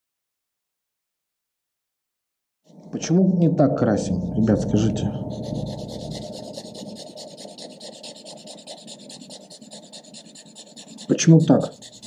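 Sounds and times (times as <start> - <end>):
marker rubbing on paper: 4.6 - 12.0.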